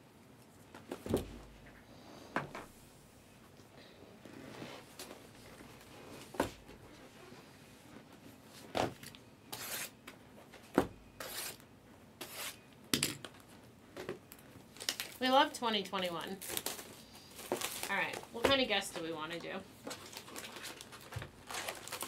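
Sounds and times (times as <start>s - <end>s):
box cutter scraping plastic wrap: 9.5s - 10.0s, 11.2s - 11.6s.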